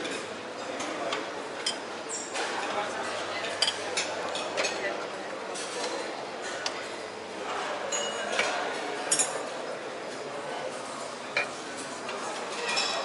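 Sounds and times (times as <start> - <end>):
murmur of voices: 0.0 - 13.0
dishes and cutlery clinking: 1.6 - 1.8, 2.4 - 4.9, 7.9 - 9.6, 11.3 - 13.0.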